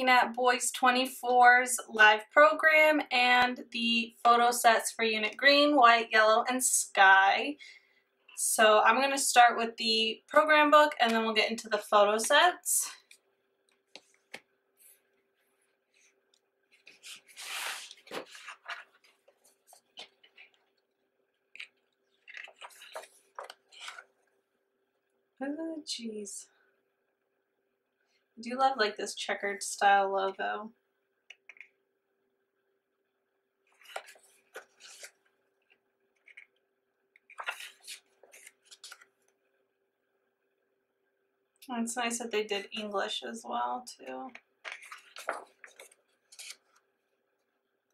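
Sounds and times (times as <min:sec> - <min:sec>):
pages rustling: 0:13.8 - 0:20.8, 0:21.5 - 0:24.4, 0:33.7 - 0:36.6, 0:37.2 - 0:39.4, 0:44.6 - 0:46.9.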